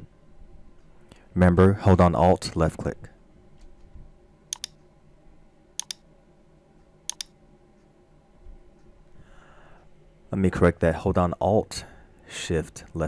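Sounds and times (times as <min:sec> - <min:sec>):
computer mouse button clicks: 0:04.5 - 0:04.8, 0:05.8 - 0:06.0, 0:07.1 - 0:07.3.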